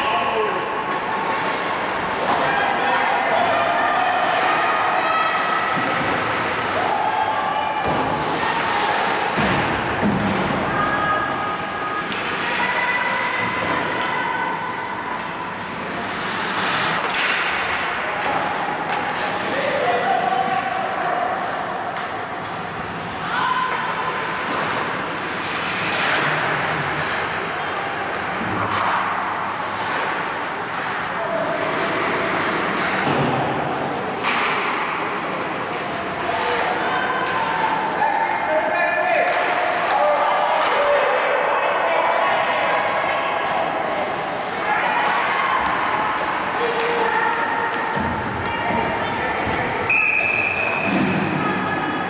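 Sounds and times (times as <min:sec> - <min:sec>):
arena background din: 0:00.0 - 0:52.0
players' voices: 0:00.0 - 0:52.0
skates scraping on ice: 0:11.5 - 0:19.8, 0:21.8 - 0:27.4
hockey sticks and puck knocking: 0:16.6 - 0:19.4, 0:34.1 - 0:36.0.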